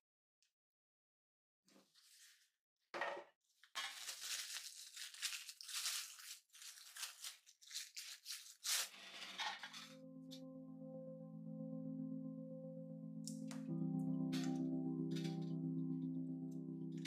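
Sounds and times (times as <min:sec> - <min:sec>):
plastic cling wrap crinkling: 0:03.6 - 0:09.1.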